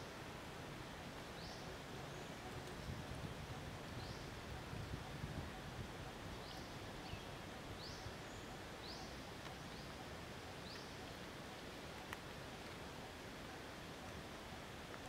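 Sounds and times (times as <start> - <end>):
steady forest hiss: 0.0 - 15.0
bird chirping: 6.3 - 11.1.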